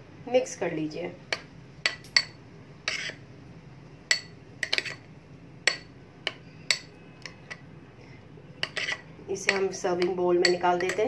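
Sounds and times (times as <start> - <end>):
metal spoon clinking glass bowl: 5.7 - 7.6, 8.6 - 11.0.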